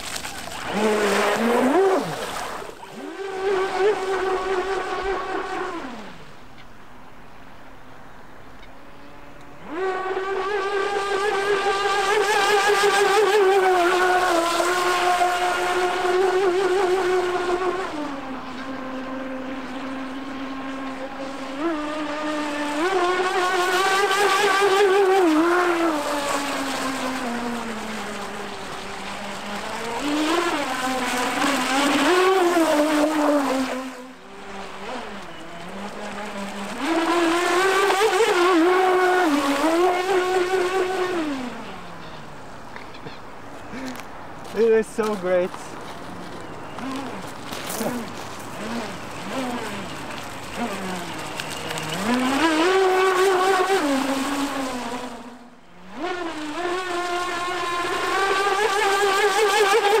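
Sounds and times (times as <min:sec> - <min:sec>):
electric motor whining: 0:09.3 - 0:42.5, 0:46.2 - 1:00.0.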